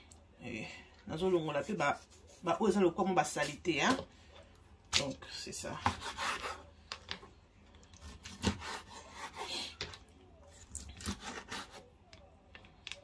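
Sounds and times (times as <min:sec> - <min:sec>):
knife cutting raw meat: 0:05.8 - 0:06.6, 0:08.0 - 0:10.0, 0:11.0 - 0:11.8.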